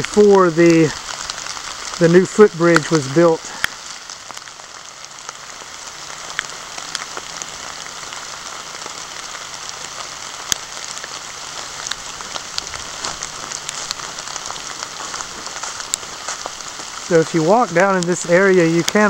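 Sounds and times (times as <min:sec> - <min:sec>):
raindrops ticking on camera: 0:00.0 - 0:19.0
steady rain hiss: 0:00.0 - 0:19.0.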